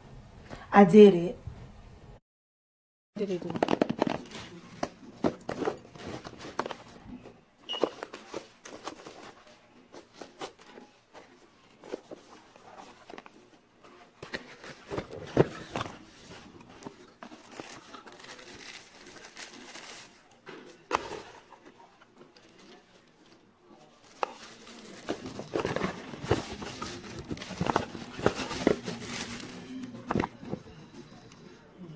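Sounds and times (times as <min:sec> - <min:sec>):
plastic wrapping crinkling: 0:14.4 - 0:21.2, 0:23.8 - 0:31.4
cardboard box tapping and scraping: 0:25.1 - 0:29.1.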